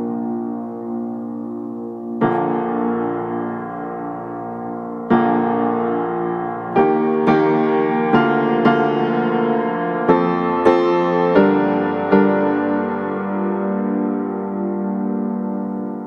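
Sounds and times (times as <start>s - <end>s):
piano chords ringing: 0.0s - 16.0s.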